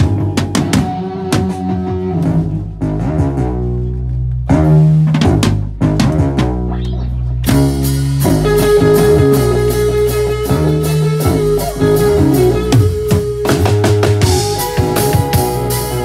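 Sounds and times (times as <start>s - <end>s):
electric guitar: 0.0s - 2.8s, 6.7s - 16.0s
drums: 0.0s - 16.0s
live band playing: 0.0s - 16.0s.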